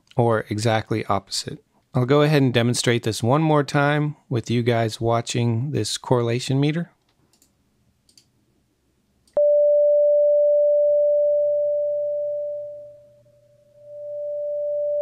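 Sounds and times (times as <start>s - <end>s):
steady sine-wave tone: 9.4s - 15.0s.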